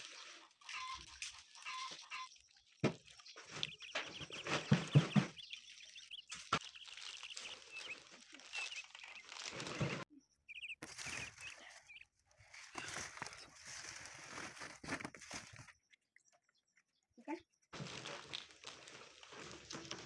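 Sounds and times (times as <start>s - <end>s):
birds chirping: 0.0s - 14.1s
plastic sack rustling: 2.9s - 10.0s, 12.5s - 15.6s, 17.8s - 20.0s.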